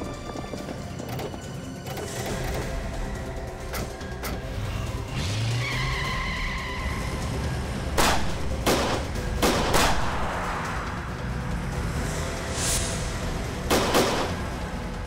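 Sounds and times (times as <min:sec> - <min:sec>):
car engine: 0:00.0 - 0:15.0
tyre squeal: 0:05.2 - 0:07.4
pistol shots: 0:13.7 - 0:14.4.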